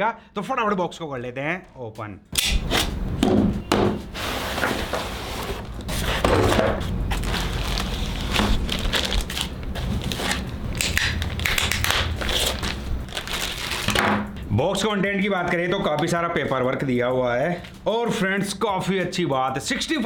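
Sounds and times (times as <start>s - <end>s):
cardboard box and foam rustling: 4.1s - 10.5s, 11.8s - 14.0s
plastic wrap crinkling: 5.6s - 14.3s.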